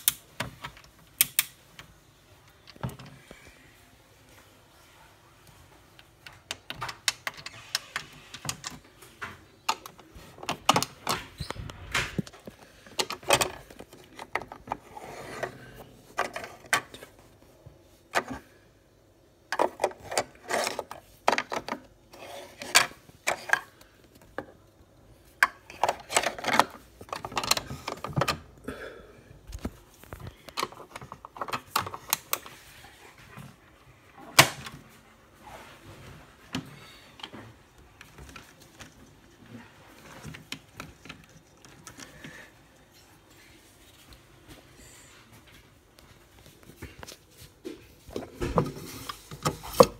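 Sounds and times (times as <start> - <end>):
plastic toy clicking and clattering: 19.5 - 23.8, 25.4 - 28.4.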